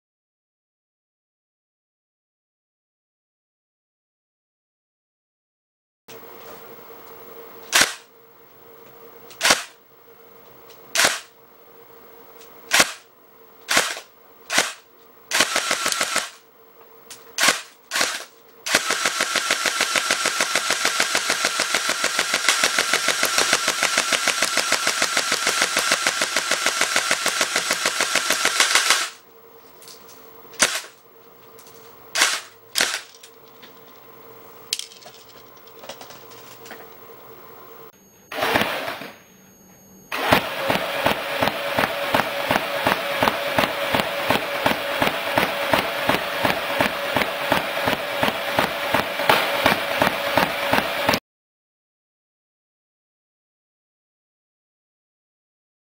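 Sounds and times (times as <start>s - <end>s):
airsoft gun firing: 7.7s - 8.1s, 9.4s - 9.8s, 11.0s - 11.3s, 12.7s - 13.1s, 13.7s - 16.4s, 17.4s - 29.2s, 30.6s - 31.0s, 32.2s - 33.1s, 40.1s - 51.2s.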